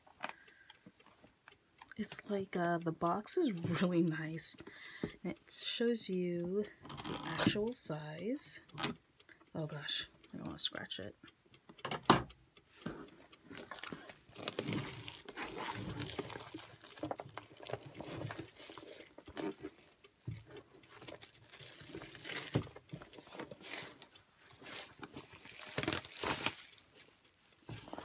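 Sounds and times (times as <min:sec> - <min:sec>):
plastic shrink-wrap crinkling and tearing: 0:13.5 - 0:28.0.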